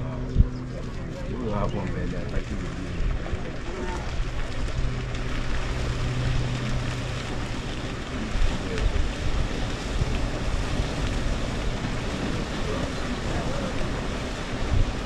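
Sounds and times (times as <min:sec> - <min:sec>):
low hum: 0:00.0 - 0:15.0
wind buffeting microphone: 0:00.0 - 0:15.0
herd splashing across river: 0:00.7 - 0:15.0.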